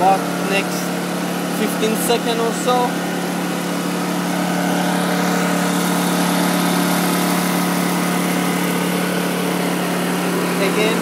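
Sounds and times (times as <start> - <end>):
generator engine running: 0.0 - 11.0.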